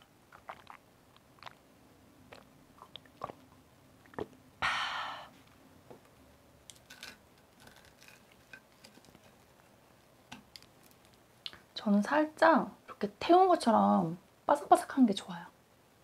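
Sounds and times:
crisp pancake crackling: 6.6s - 11.5s.

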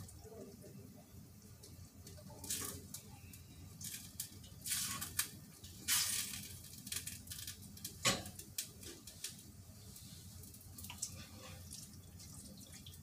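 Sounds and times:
water splashing in sink: 10.8s - 13.0s.

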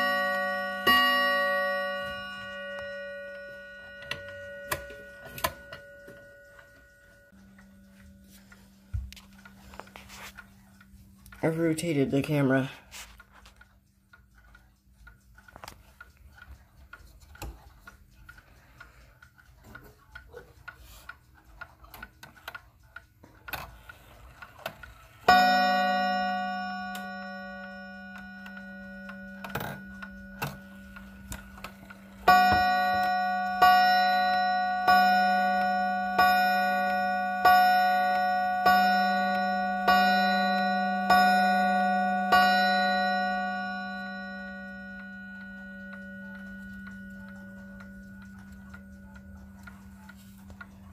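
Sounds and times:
clock gong strikes: 0.0s - 8.6s, 25.3s - 50.2s
wall clock ticking: 0.0s - 50.9s.

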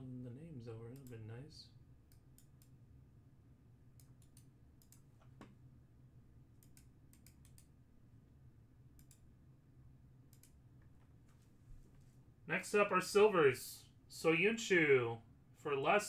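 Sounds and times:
low steady hum: 0.0s - 16.0s
keyboard and mouse clicks: 4.0s - 5.6s, 6.6s - 7.7s, 10.3s - 10.6s.

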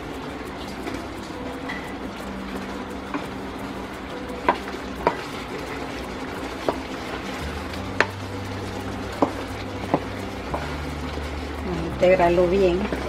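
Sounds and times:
low sizzle: 0.0s - 13.0s
wooden spoon stirring in pan: 2.6s - 13.0s.

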